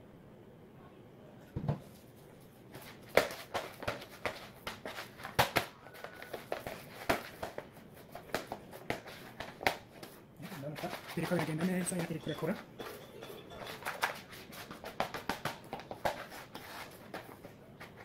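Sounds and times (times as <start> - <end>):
hands slapping dough: 2.7 - 12.6, 13.8 - 18.0.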